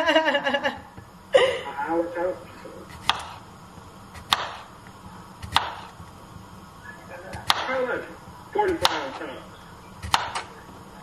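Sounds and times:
knife chopping on cutting board: 0:02.9 - 0:03.4, 0:04.1 - 0:04.7, 0:05.4 - 0:06.0, 0:07.3 - 0:07.8, 0:08.6 - 0:09.2, 0:10.0 - 0:10.5.

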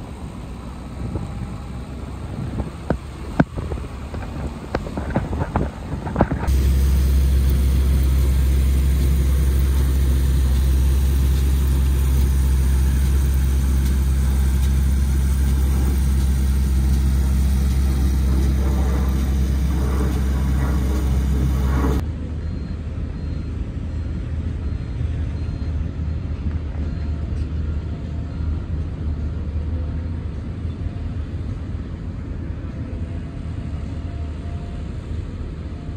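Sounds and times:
distant excavators rumbling: 0:00.0 - 0:22.0
tractor diesel engine droning: 0:00.0 - 0:26.1.

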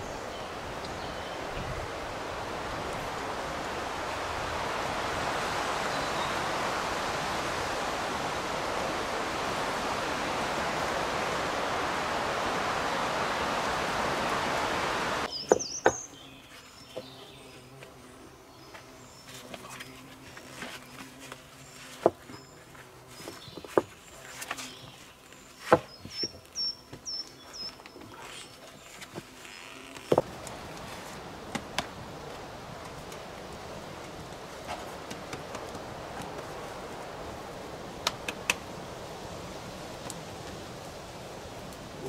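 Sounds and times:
steady rushing noise: 0:00.0 - 0:15.3
outdoor ambience: 0:00.0 - 0:42.0
heavy stones knocking: 0:30.1 - 0:30.4.

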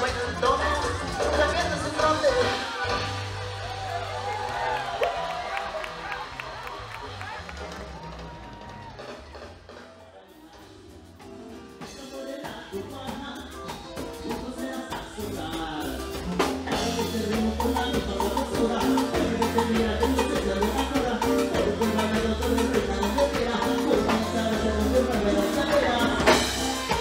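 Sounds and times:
latin dance music: 0:00.0 - 0:27.0.

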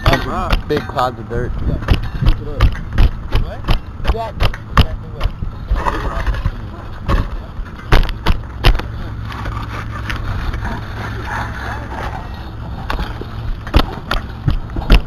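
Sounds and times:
rake scraping over gravel: 0:09.2 - 0:13.4.

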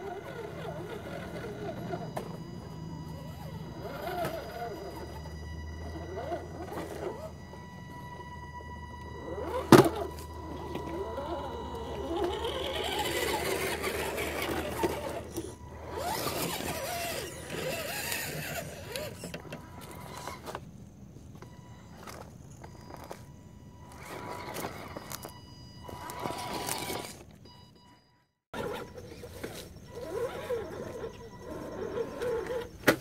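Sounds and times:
rc truck motors whining: 0:00.0 - 0:33.0
tyres grinding over stones: 0:09.4 - 0:20.7, 0:22.0 - 0:25.3, 0:25.9 - 0:27.3.

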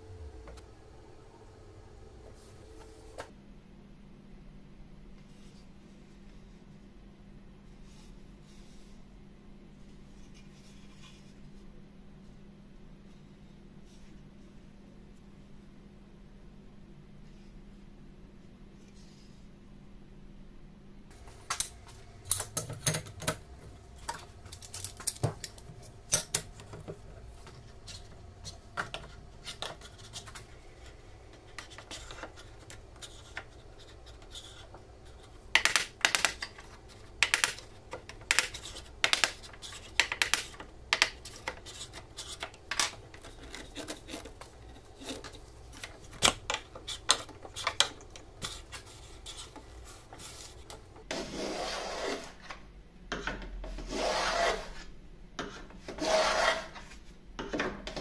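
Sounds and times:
wood and tools clicking and knocking: 0:21.1 - 0:51.1.

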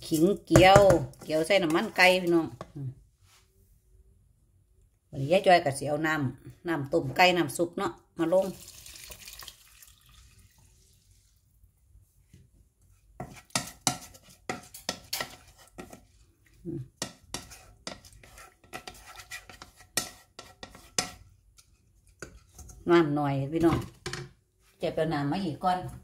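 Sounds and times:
wooden spatula scraping a pot: 0:00.0 - 0:02.8, 0:12.3 - 0:24.2.

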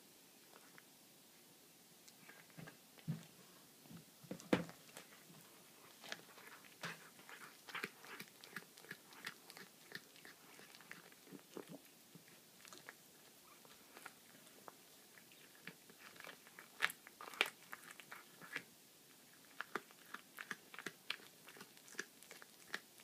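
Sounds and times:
cat crunching bones: 0:05.8 - 0:18.6, 0:19.3 - 0:23.0.

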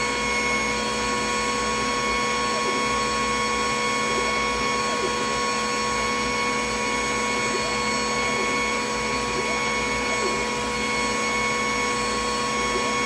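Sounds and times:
faint motor whines: 0:00.0 - 0:13.0
fan whir: 0:00.0 - 0:13.0.

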